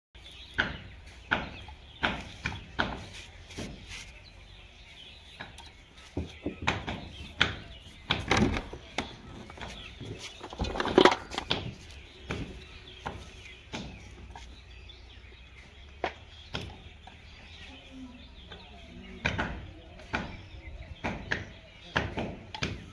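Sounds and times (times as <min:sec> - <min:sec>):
fittings clattering in metal pan: 0:10.4 - 0:11.5
plastic pipe fittings clicking: 0:10.4 - 0:11.6.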